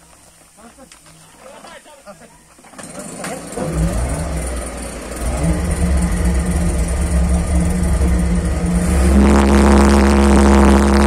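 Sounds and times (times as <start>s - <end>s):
pulse jet engine droning: 4.3s - 11.0s.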